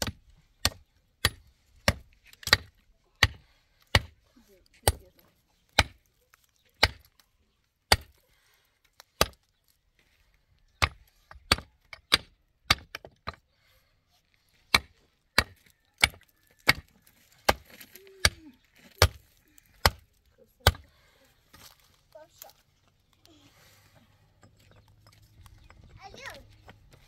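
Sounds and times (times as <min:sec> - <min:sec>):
chopping or hammering on wood: 0:14.7 - 0:16.9, 0:19.8 - 0:20.0.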